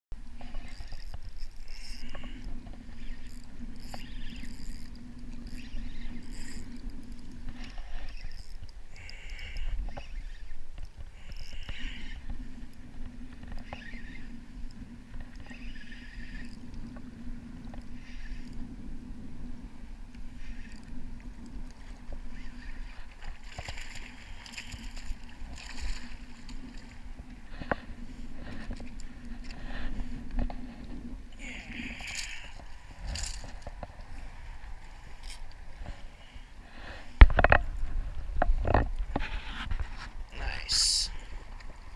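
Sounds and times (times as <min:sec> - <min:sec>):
fishing reel gear whir: 0:00.2 - 0:41.9
wind rumbling on microphone: 0:00.2 - 0:41.9
small clicks: 0:00.4 - 0:18.6.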